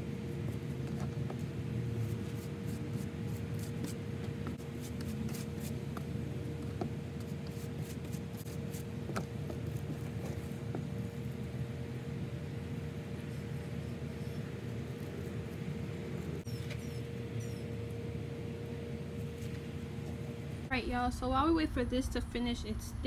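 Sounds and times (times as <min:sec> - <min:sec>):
steady low hum: 0:00.0 - 0:23.0
comb scratching through wet hair: 0:04.6 - 0:05.8.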